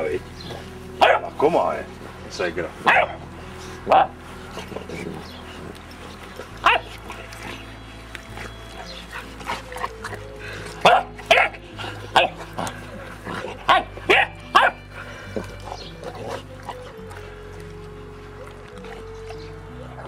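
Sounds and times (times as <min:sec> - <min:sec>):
puppy barking: 0:01.0 - 0:01.4, 0:02.8 - 0:03.2, 0:06.5 - 0:07.3, 0:10.8 - 0:14.9.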